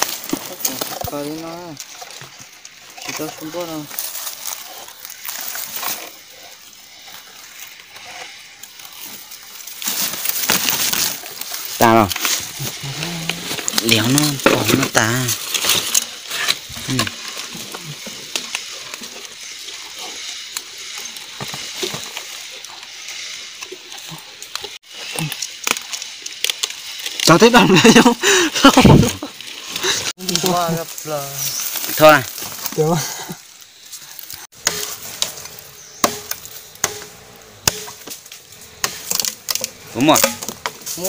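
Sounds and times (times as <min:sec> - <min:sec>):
bamboo rustling and crackling: 0:00.0 - 0:41.0
blade chopping into bamboo: 0:36.0 - 0:38.2.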